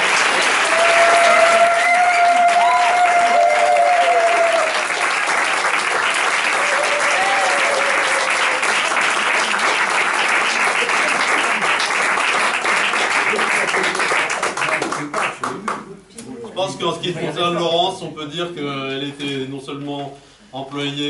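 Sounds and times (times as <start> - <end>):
audience applauding: 0.0 - 15.9.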